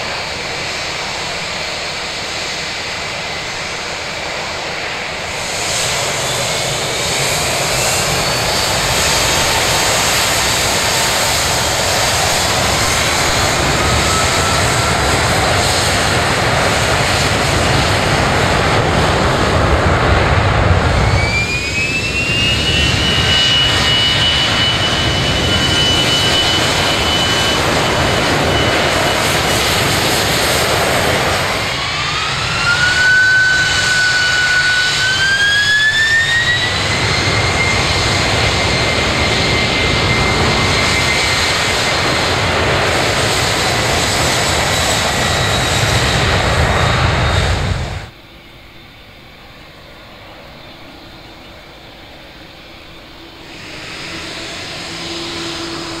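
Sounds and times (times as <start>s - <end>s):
jet engines spooling up: 0.0s - 56.0s
deep rumble: 5.3s - 32.3s, 36.6s - 48.1s.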